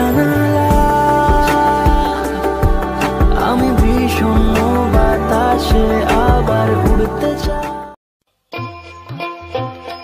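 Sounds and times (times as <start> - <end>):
song with drum beat: 0.0 - 8.0.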